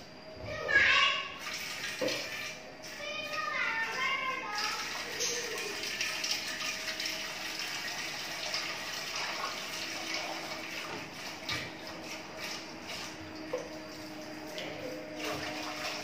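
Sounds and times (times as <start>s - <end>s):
tap water running into sink: 1.4s - 2.6s, 4.5s - 13.8s.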